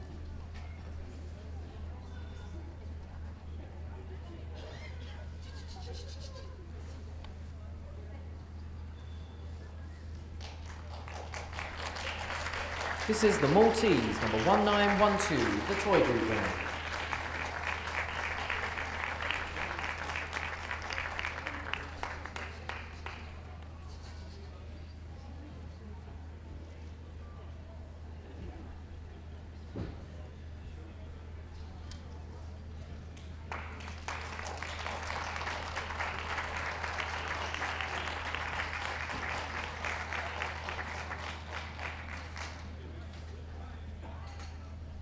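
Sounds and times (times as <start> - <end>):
audience applauding: 10.4 - 23.4, 33.5 - 42.8.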